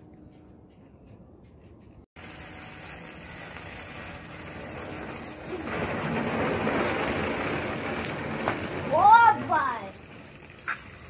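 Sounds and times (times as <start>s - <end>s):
firework fountain hissing: 2.2s - 11.0s.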